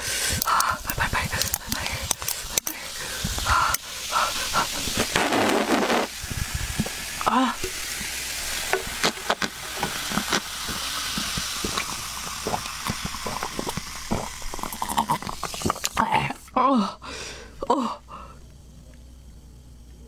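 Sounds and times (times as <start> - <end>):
carbonation fizzing: 0.0 - 16.6
person gulping drink: 0.3 - 16.6
cola pouring into glass: 6.0 - 16.0.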